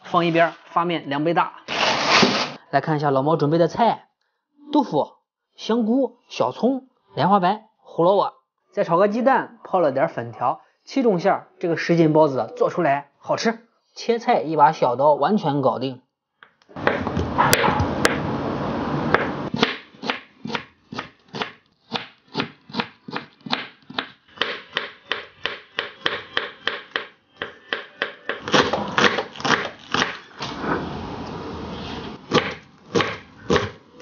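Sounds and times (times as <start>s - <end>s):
scraping noise: 1.7s - 2.6s, 30.4s - 32.2s
knife chopping on cutting board: 19.2s - 30.2s, 32.3s - 33.8s.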